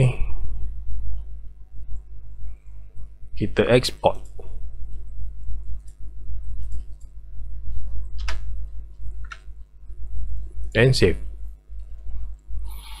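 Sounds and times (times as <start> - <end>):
low hum: 0.0 - 13.0
computer mouse clicks: 8.1 - 8.4.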